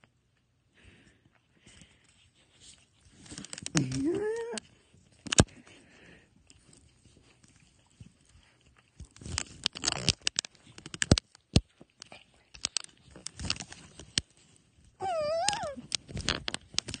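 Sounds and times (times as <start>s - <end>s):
dog whining: 3.8s - 4.6s, 15.0s - 15.9s.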